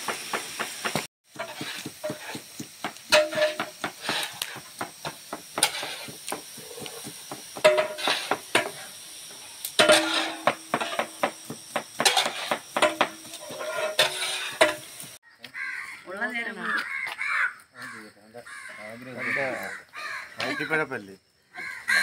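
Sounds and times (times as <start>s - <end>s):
metal ladle scraping cooking pot: 1.3s - 2.4s, 5.6s - 6.1s, 7.6s - 8.8s, 9.8s - 11.3s, 12.0s - 15.0s.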